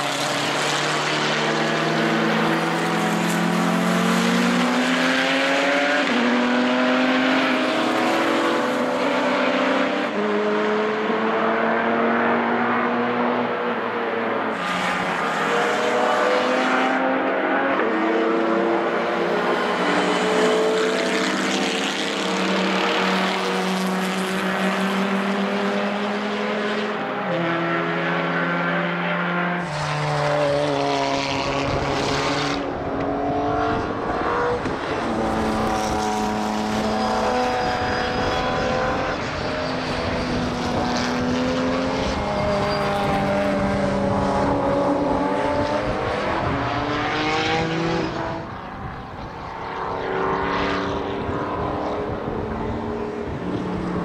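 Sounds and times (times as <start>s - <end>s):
racing car engines: 0.0s - 54.0s
wind rumble on microphone: 37.4s - 49.6s, 50.8s - 54.0s.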